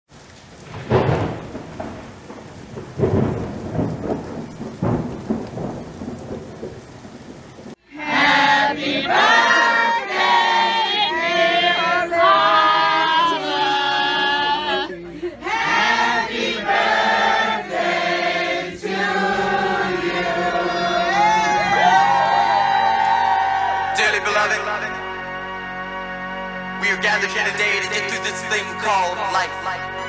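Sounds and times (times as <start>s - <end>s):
steady rain: 0.1s - 25.2s
thunder rumbling: 0.4s - 7.8s
people singing together: 7.9s - 22.5s.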